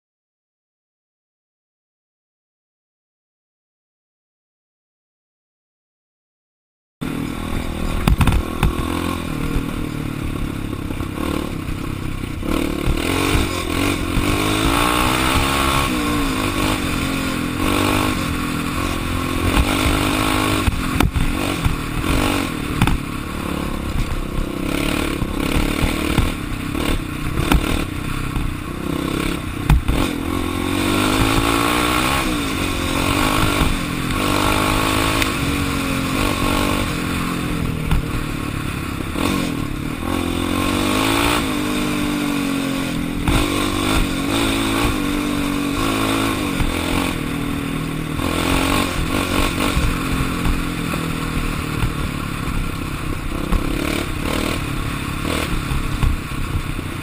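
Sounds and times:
quad bike engine revving: 7.0 - 57.0
chassis clattering over bumps: 7.3 - 41.1.

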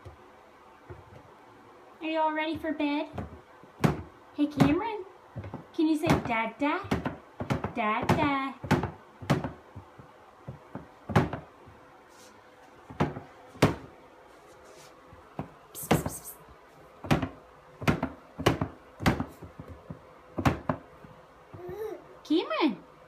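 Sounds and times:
hands banging on bin and shelf: 3.1 - 11.8, 12.8 - 14.0, 17.0 - 21.8
short rustle: 14.2 - 15.1.

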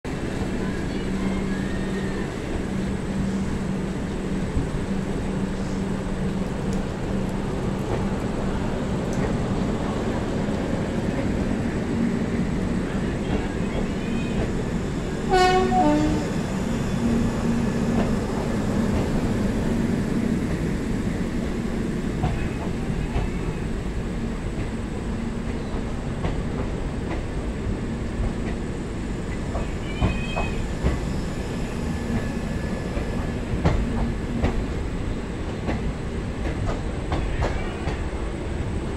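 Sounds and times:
train coaches rolling past: 0.1 - 38.9
train horn blast: 15.3 - 16.3.

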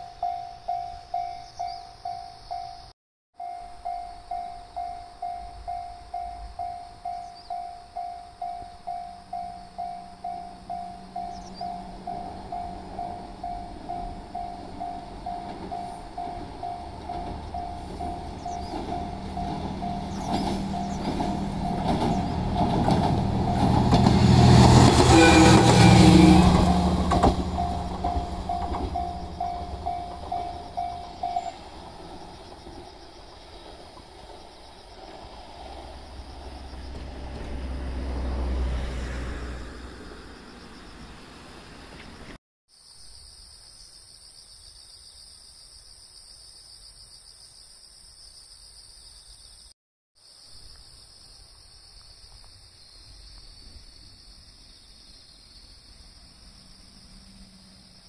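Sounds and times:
diesel railcar passing: 0.0 - 42.4, 55.3 - 58.0
level crossing bell ringing: 27.5 - 31.6.

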